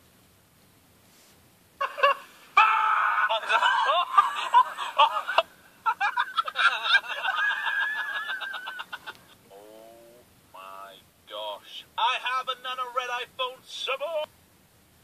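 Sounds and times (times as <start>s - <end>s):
people yelling and laughing: 1.8s - 9.1s
long wavering shout: 1.9s - 4.0s.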